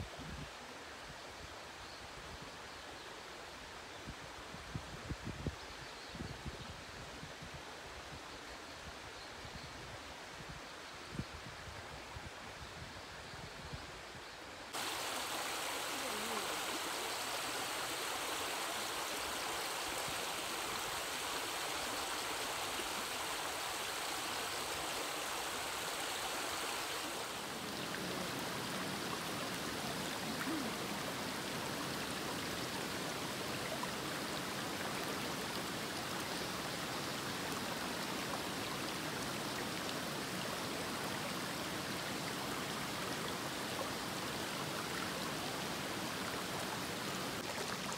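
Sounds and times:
stream babbling over stones: 14.7 - 47.9.

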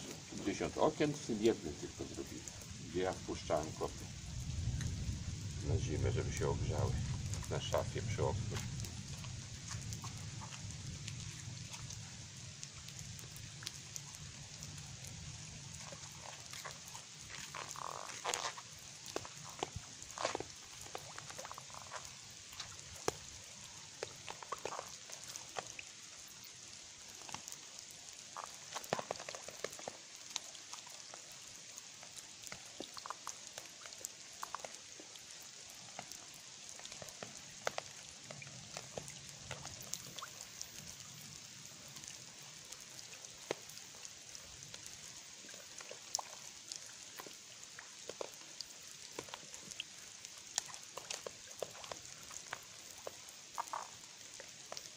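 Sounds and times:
light rain on pavement: 0.0 - 54.9.

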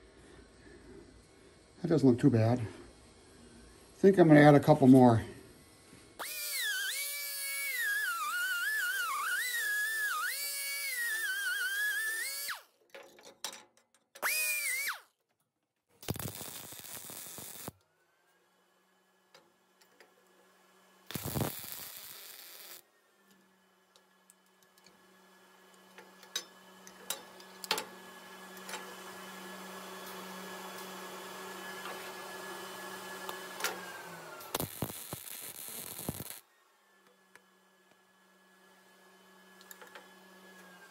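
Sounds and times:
welder arc noise: 6.2 - 12.7, 14.2 - 15.1, 16.0 - 17.8, 21.0 - 22.8, 25.7 - 36.5.

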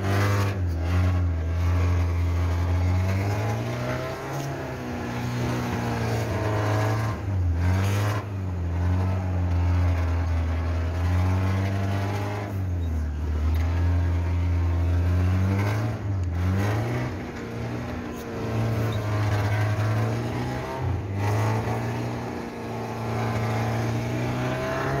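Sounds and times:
car engine while driving: 0.0 - 25.0.

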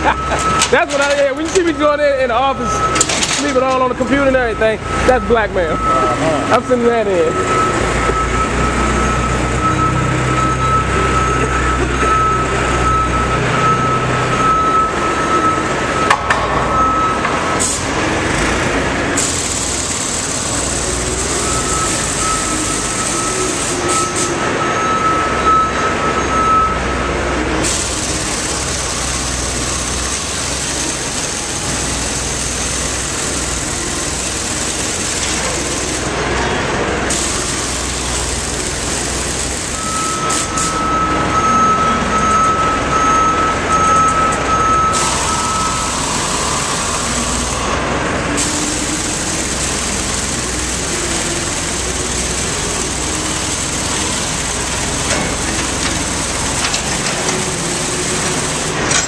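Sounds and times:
reverse alarm beeping: 0.0 - 18.0, 20.3 - 27.0, 39.6 - 47.8
forklift engine running: 0.0 - 59.0.

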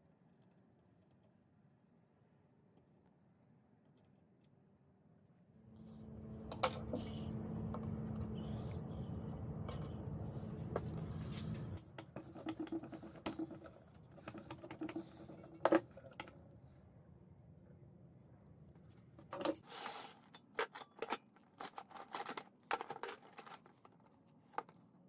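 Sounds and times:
steady low hum: 5.2 - 19.6.

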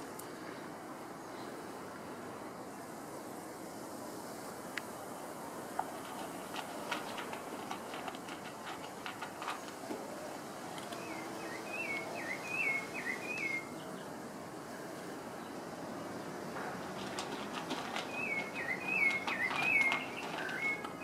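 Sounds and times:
dog crunching dry kibble: 5.8 - 11.0, 16.6 - 21.0
bird whistling: 11.1 - 13.7, 18.1 - 21.0.

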